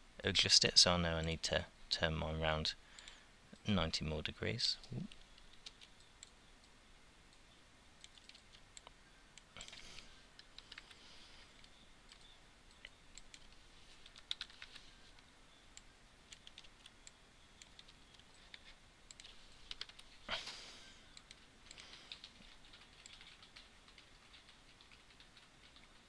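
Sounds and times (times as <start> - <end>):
keyboard typing: 5.1 - 6.4, 8.0 - 8.9, 9.6 - 15.2, 16.3 - 20.4, 21.2 - 26.0.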